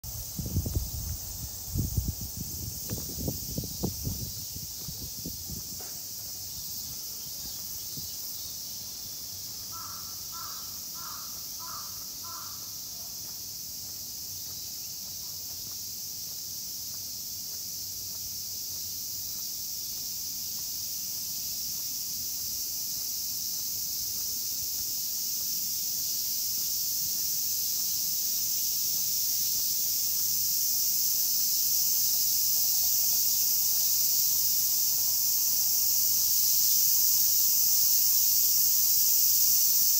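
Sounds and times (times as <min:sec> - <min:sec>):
cicadas buzzing: 0:00.0 - 0:39.9
crow cawing: 0:09.7 - 0:12.8.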